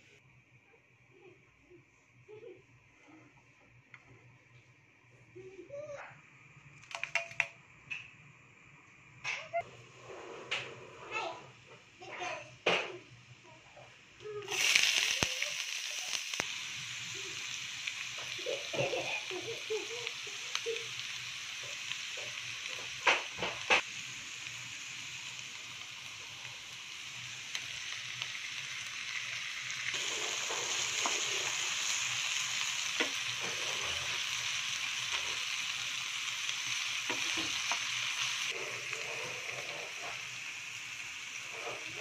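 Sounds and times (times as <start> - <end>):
onions sizzling in oil: 11.2 - 42.0.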